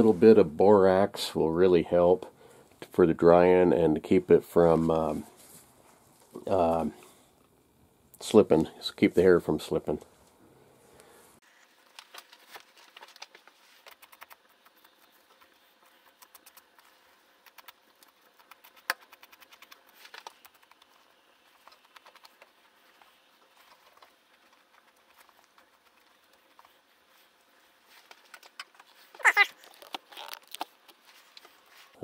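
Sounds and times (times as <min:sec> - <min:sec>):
clicks and scratching on hide: 0:11.7 - 0:32.0.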